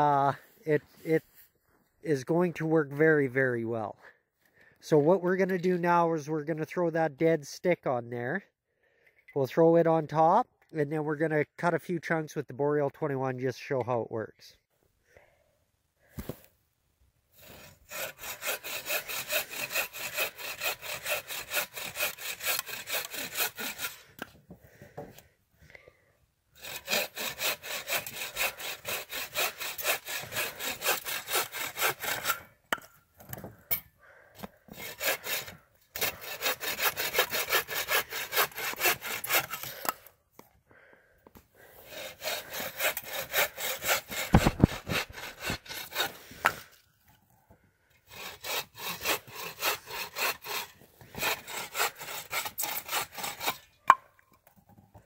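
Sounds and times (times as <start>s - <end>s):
saw cutting stick: 17.4s - 24.3s, 26.6s - 32.9s, 34.7s - 40.1s, 41.8s - 46.8s, 48.0s - 54.0s.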